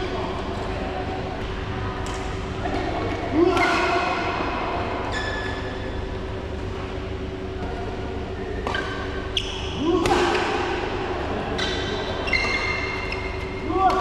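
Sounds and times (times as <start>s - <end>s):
badminton racket hitting shuttlecock: 9.9s - 10.8s.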